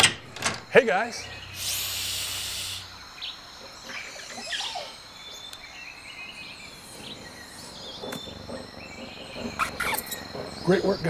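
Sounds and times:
faint bird chirps: 0:01.1 - 0:11.0.

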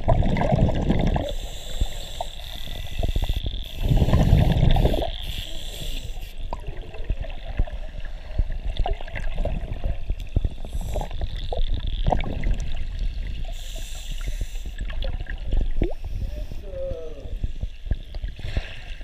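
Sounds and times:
underwater bubbles gurgling: 0:00.0 - 0:19.0.

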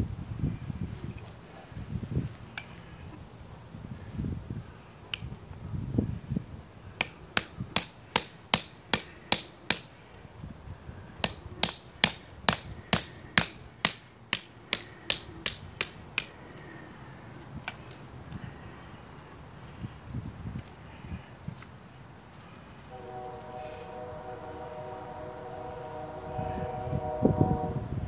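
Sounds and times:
hatchet striking knife spine: 0:07.0 - 0:09.9, 0:11.2 - 0:16.4.

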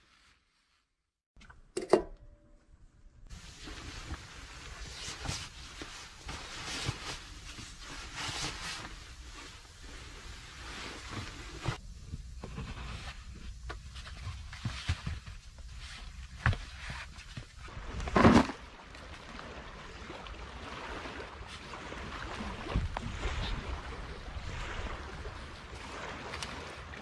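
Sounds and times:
sleeping bag fabric rustling: 0:03.3 - 0:11.8.

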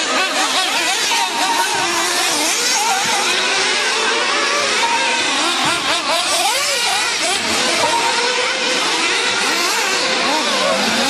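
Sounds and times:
small model engines whining: 0:00.0 - 0:11.0.

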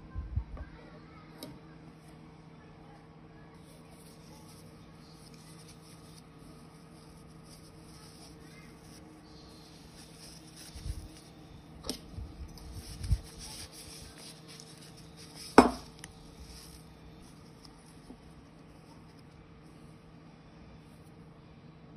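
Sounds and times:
fabric rustling: 0:03.8 - 0:19.2.

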